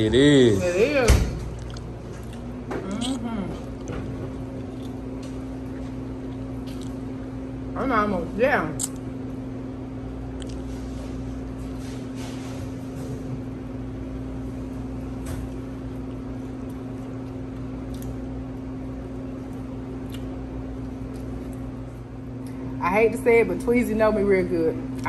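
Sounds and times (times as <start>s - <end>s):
machinery humming: 0.0s - 25.0s
person chewing food: 1.4s - 7.2s, 10.3s - 10.9s, 15.8s - 22.5s.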